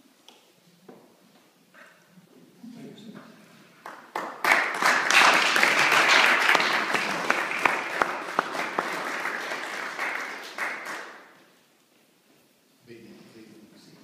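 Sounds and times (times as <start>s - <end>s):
people applauding: 3.8s - 11.4s.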